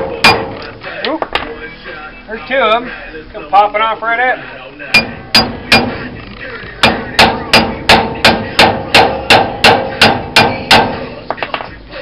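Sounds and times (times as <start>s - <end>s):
hammer striking metal: 0.0s - 0.6s, 5.0s - 6.1s, 6.8s - 11.6s.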